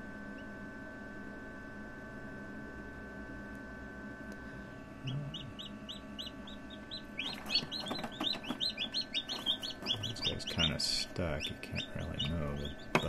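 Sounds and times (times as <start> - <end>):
incubator hum: 0.0 - 13.0
chicks peeping: 5.0 - 13.0.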